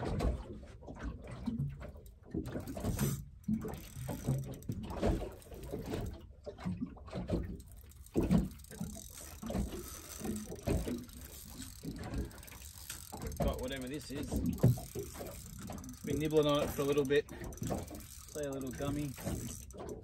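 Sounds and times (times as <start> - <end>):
fishing reel winding: 2.6 - 6.1, 7.6 - 20.0.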